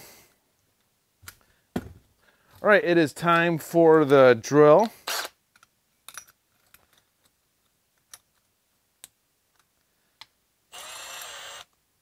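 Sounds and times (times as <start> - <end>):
drill motor spinning: 10.7 - 11.8.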